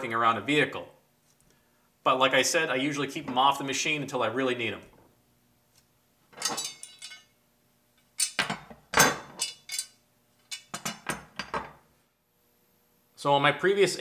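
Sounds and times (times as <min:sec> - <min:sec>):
metal parts clinking: 0:06.4 - 0:07.3, 0:08.2 - 0:11.1.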